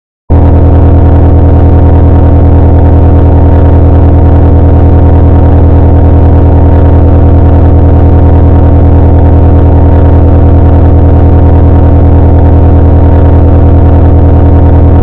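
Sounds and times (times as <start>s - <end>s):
distorted low buzzing drone: 0.3s - 15.0s.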